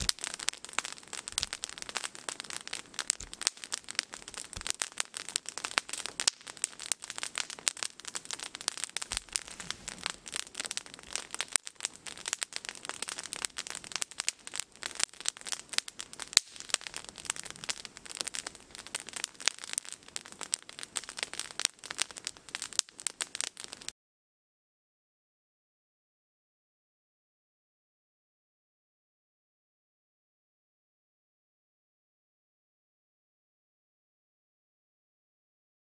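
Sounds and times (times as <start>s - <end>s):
campfire crackling: 0.0s - 23.9s.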